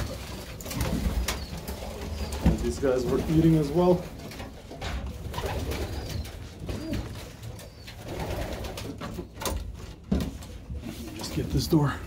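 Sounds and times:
pigeons cooing: 0:00.0 - 0:10.0.

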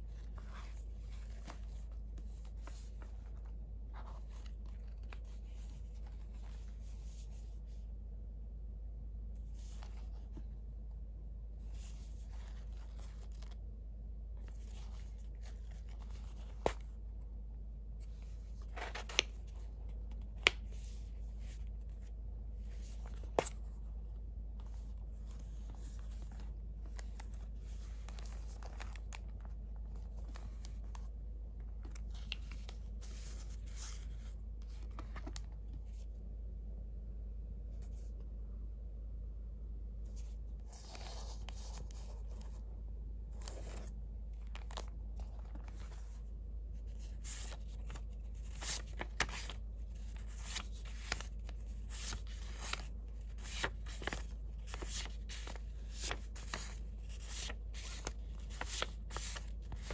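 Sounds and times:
paper rustling and sliding: 0:31.8 - 0:36.1, 0:43.3 - 0:59.9.

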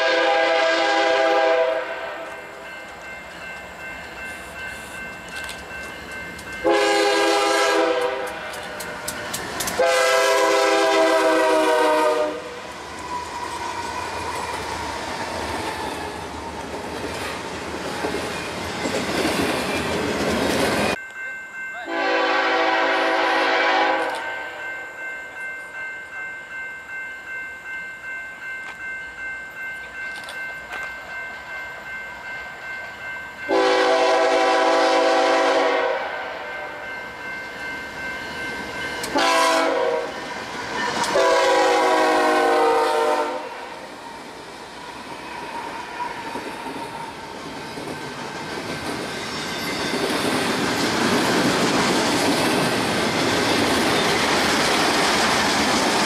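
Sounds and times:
locomotive air horn blasts: 0:00.0 - 0:02.3, 0:06.6 - 0:08.4, 0:09.8 - 0:12.6, 0:21.9 - 0:24.6, 0:33.5 - 0:36.7, 0:39.1 - 0:40.2, 0:41.1 - 0:43.7
passing train rumble and clatter: 0:00.0 - 0:56.0
bell ringing: 0:02.3 - 0:06.8, 0:20.9 - 0:22.6, 0:24.0 - 0:33.8, 0:36.5 - 0:39.2.

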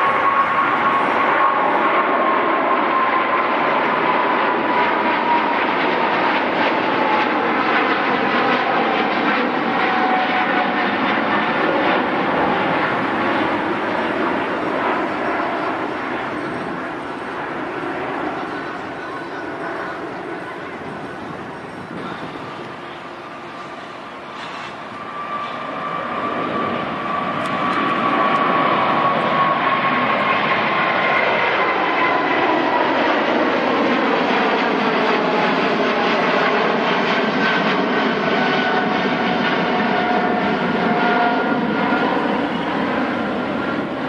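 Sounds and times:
jet whine falling in pitch: 0:00.0 - 0:33.2
jet engine roar overhead: 0:00.0 - 0:44.0.

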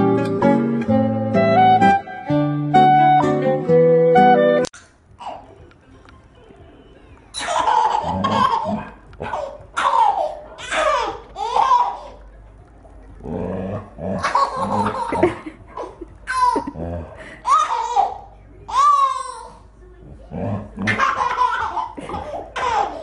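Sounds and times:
baby laughing: 0:05.2 - 0:05.6, 0:07.3 - 0:12.2, 0:14.2 - 0:16.8, 0:17.4 - 0:19.6, 0:20.8 - 0:23.0.

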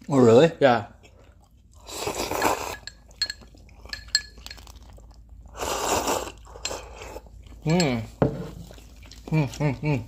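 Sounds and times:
slurping noodles: 0:01.7 - 0:02.9, 0:04.7 - 0:07.6
chopsticks clinking on ceramic bowl: 0:02.4 - 0:04.8, 0:06.6 - 0:08.2.

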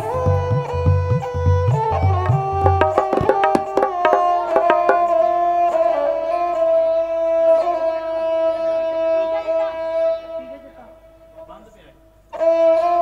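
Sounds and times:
tabla playing: 0:00.2 - 0:05.6
held melody notes: 0:02.3 - 0:05.4.

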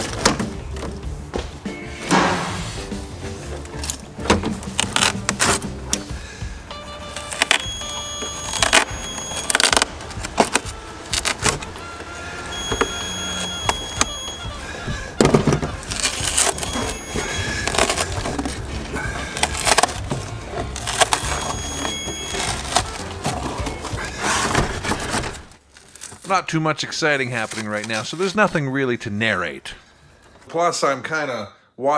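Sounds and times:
background music: 0:00.0 - 0:25.6
carpet tearing and scraping: 0:03.8 - 0:05.9, 0:07.1 - 0:12.2, 0:15.6 - 0:26.3.

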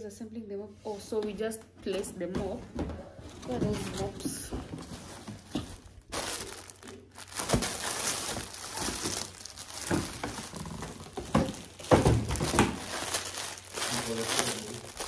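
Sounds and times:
plastic bags crinkling: 0:03.3 - 0:15.0.

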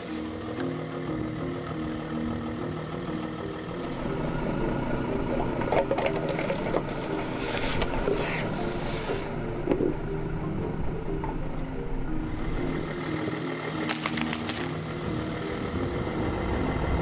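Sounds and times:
car engine hum: 0:00.0 - 0:08.1, 0:09.4 - 0:17.0
background music: 0:00.0 - 0:17.0
plastic toys crushed by tyre: 0:13.8 - 0:14.9.

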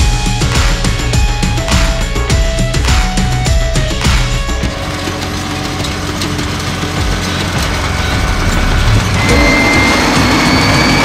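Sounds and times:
steady high whine: 0:00.0 - 0:11.0
tractor engine running: 0:00.0 - 0:11.0.

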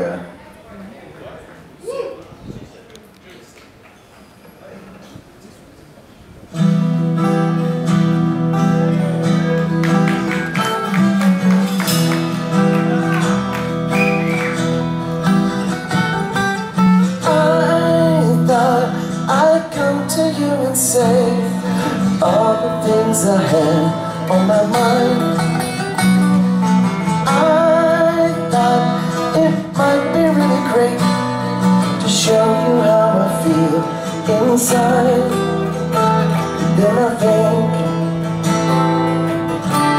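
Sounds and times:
guitars playing: 0:06.5 - 0:39.9
man singing: 0:17.2 - 0:26.2, 0:27.1 - 0:38.8.

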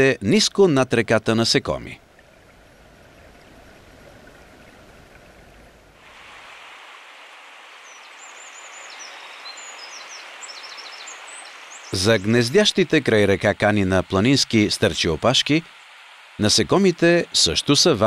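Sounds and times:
underwater river rumble: 0:02.0 - 0:16.9
river rushing: 0:05.9 - 0:18.0
small birds chirping: 0:06.1 - 0:14.7.

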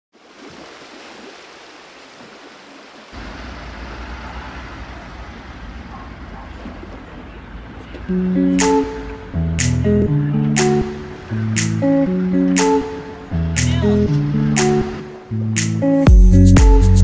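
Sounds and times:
vehicles rumbling slowly: 0:03.2 - 0:15.5
plucked acoustic guitar music: 0:08.0 - 0:17.0.

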